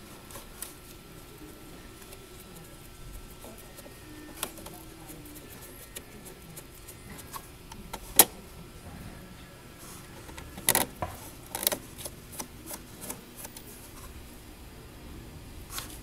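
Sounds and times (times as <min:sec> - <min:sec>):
plastic parts clicking and tapping: 0:10.2 - 0:13.7.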